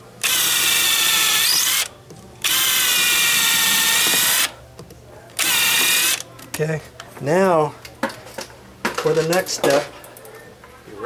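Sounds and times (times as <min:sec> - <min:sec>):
cordless drill boring into wood: 0:00.2 - 0:04.5, 0:05.4 - 0:06.2.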